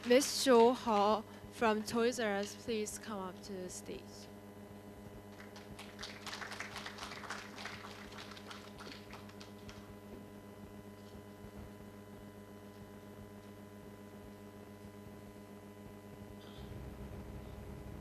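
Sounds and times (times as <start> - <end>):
steady low hum: 0.0 - 18.0
scattered applause: 5.3 - 9.9.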